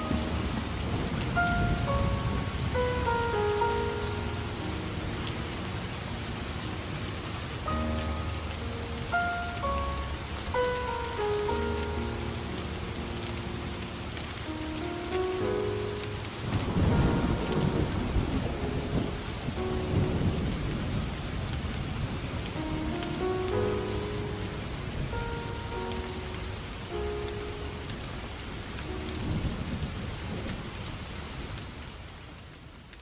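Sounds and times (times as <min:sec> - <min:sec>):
thunder rolling: 0:00.0 - 0:08.4, 0:16.4 - 0:25.4
slow piano notes: 0:00.0 - 0:31.6
heavy rain: 0:00.0 - 0:33.0.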